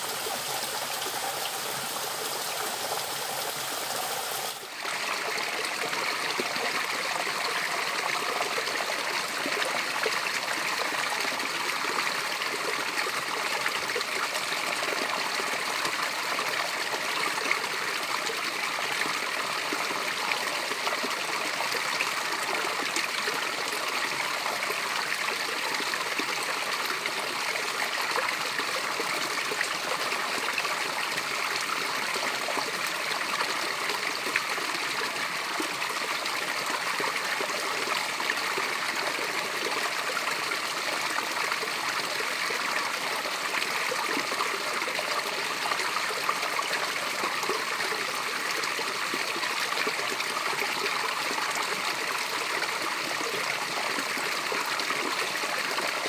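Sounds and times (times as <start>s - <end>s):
waterfall cascading over rock: 0.0s - 18.1s.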